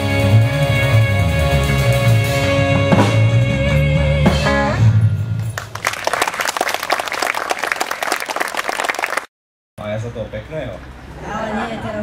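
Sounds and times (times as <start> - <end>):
audience applauding: 5.4 - 9.3.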